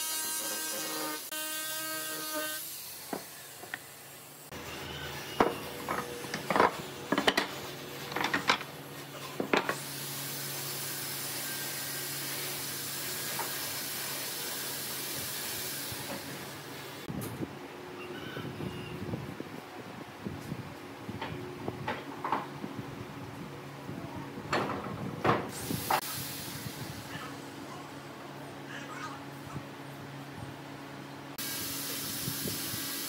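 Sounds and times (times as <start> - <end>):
angle grinder: 0.0 - 6.4.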